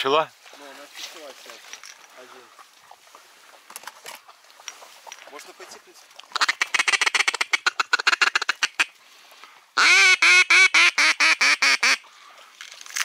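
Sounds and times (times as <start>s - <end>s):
duck clicking chatter: 6.3s - 8.9s
duck quacking: 6.3s - 8.9s, 9.8s - 12.0s.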